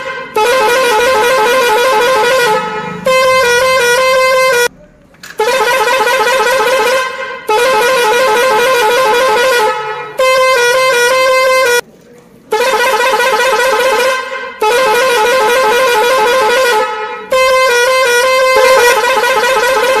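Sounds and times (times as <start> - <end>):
warbling electronic horn: 17.4 - 20.0
electronic tune of stepped notes: 18.6 - 19.1.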